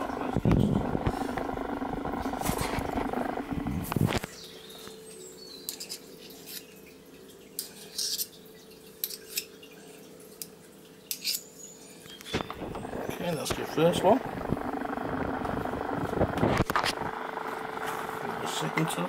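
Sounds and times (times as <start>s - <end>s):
loud steady hum: 0.0s - 4.4s, 12.4s - 19.0s.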